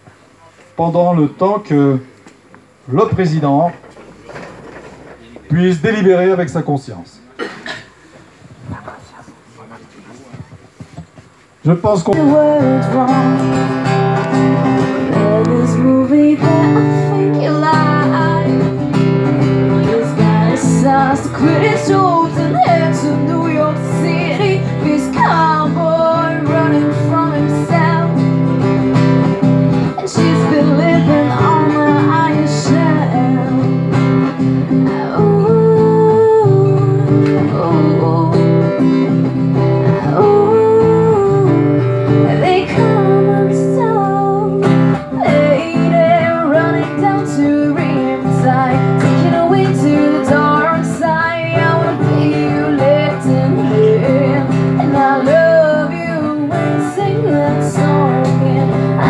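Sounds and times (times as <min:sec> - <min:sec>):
acoustic guitar: 0:00.0 - 0:59.0
woman singing: 0:12.1 - 0:28.6, 0:29.8 - 0:59.0.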